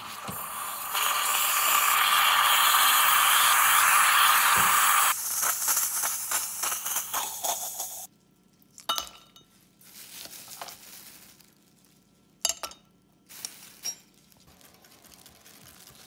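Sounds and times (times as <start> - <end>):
moka pot hissing: 0.0 - 8.1.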